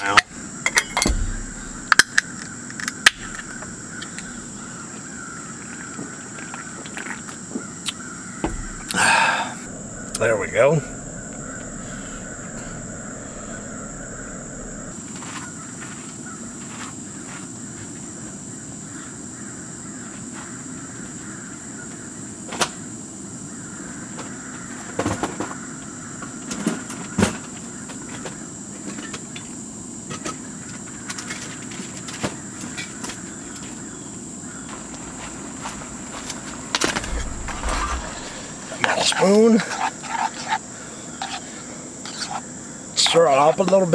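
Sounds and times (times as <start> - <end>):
high-pitched insect drone: 0.0 - 5.4, 8.0 - 15.1, 36.8 - 39.4.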